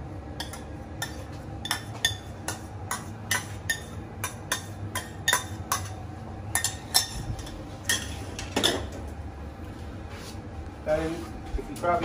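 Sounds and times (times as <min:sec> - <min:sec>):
metal spoon clinking on saucepan: 0:00.4 - 0:08.8.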